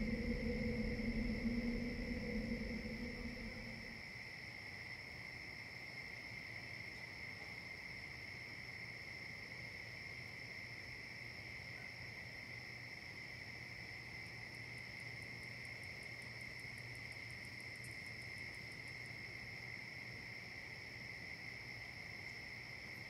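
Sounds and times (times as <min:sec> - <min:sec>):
crickets trilling: 0:00.0 - 0:04.3.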